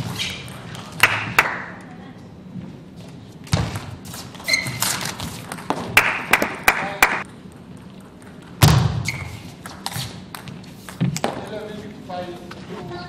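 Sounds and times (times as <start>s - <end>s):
shoes squeaking on floor: 0.0s - 0.7s, 2.6s - 5.9s, 8.3s - 11.2s.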